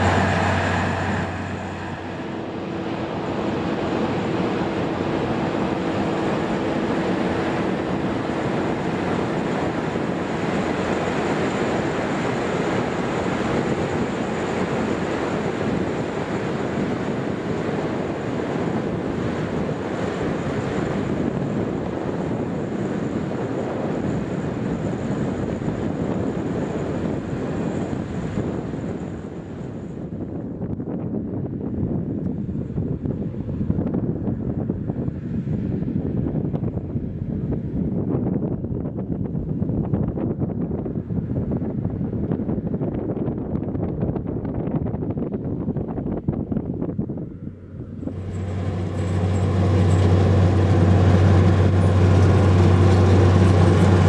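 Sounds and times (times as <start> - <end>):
harvester machine drone: 0.0 - 30.2, 45.7 - 54.0
wind buffeting microphone: 0.0 - 54.0.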